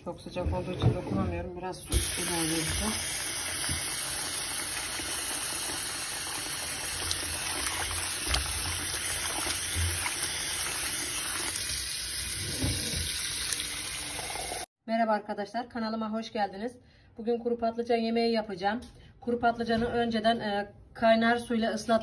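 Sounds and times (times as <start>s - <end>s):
tap running into a bowl: 1.9s - 5.2s
small splashes: 2.1s - 14.2s.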